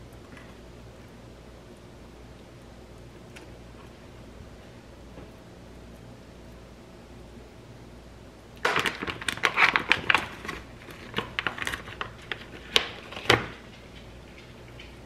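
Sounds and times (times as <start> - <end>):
plastic packet crinkling: 8.6 - 14.0.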